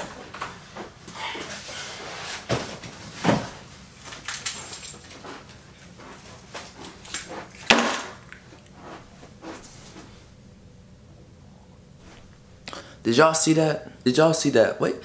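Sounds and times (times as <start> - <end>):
footsteps: 2.3 - 10.4, 12.0 - 12.4.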